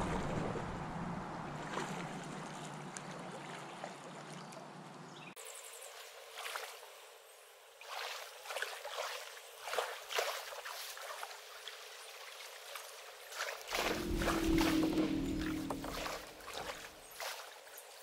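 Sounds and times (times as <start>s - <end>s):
paddle splashing in water: 7.9s - 17.6s
water trickling off paddle: 13.7s - 17.5s.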